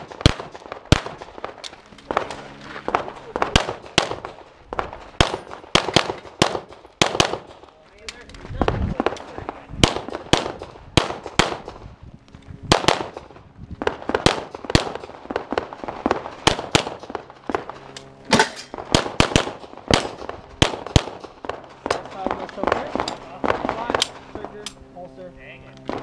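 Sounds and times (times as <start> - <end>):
pistol shots: 0.0 - 2.3, 3.3 - 7.7, 9.0 - 11.8, 12.7 - 17.7, 18.3 - 24.2.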